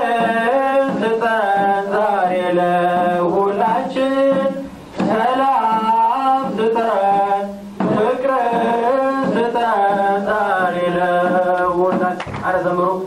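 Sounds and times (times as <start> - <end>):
voices singing a slow hymn: 0.0 - 13.0.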